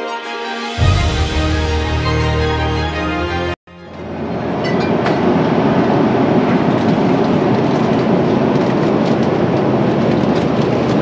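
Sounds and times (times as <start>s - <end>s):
airliner engines and airflow in cabin: 3.7s - 11.0s.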